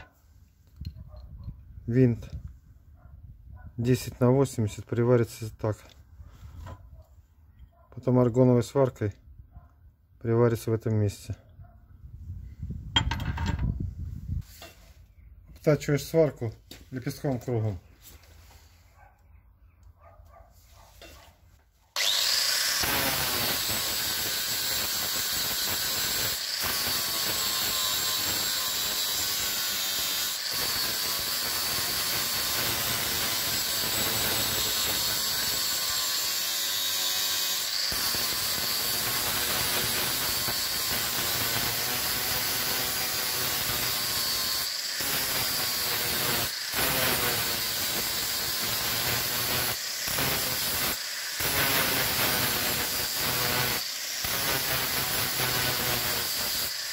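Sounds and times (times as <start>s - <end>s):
angle grinder grinding steel: 22.0s - 56.9s.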